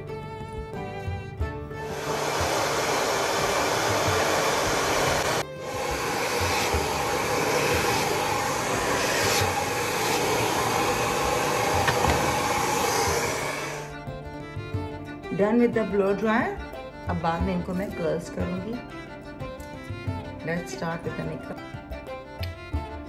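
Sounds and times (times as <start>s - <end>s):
hair dryer blowing: 1.8s - 14.0s.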